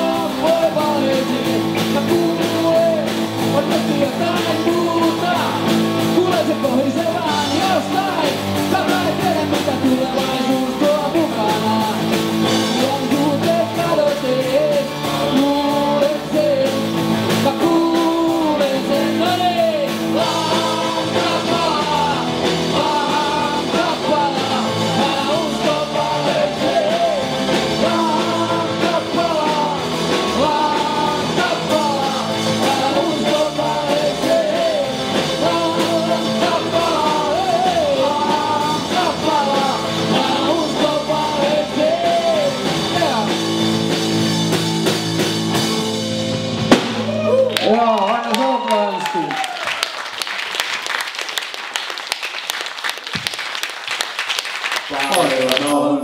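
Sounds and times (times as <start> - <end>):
lead vocals singing: 0.0 - 44.2
live rock band playing: 0.0 - 50.2.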